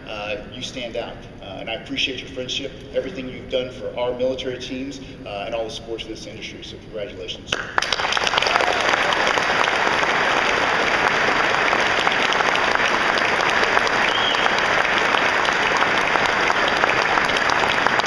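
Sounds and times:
audience applauding: 0:07.5 - 0:18.0.

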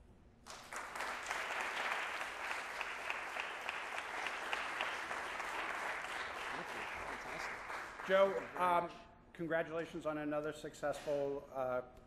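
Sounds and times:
audience applauding: 0:00.5 - 0:08.8.

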